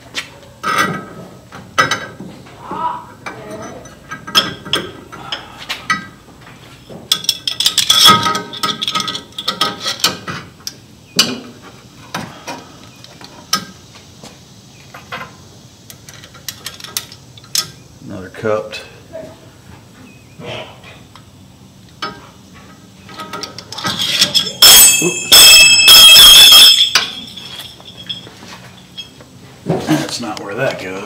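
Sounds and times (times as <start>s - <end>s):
small metal parts clinking: 7.1s - 10.2s, 15.9s - 17.7s, 23.1s - 29.2s.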